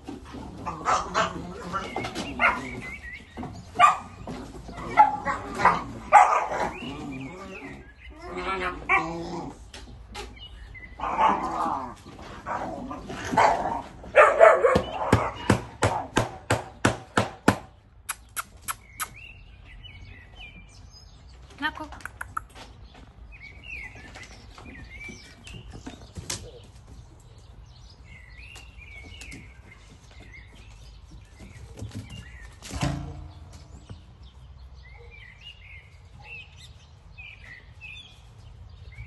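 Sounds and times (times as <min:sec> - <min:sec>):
dogs barking: 0:00.6 - 0:03.0, 0:03.6 - 0:07.6, 0:11.0 - 0:16.6.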